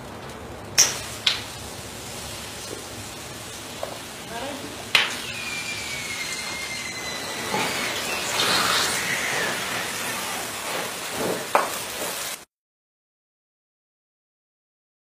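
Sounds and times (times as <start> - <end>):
flames rushing and crackling: 0.0 - 12.5
sharp pop from fire: 0.7 - 1.5, 4.9 - 5.2.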